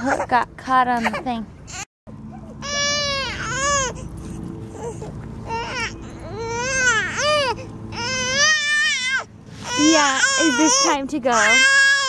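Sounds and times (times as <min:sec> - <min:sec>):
baby crying: 0:02.6 - 0:04.1, 0:04.7 - 0:12.0.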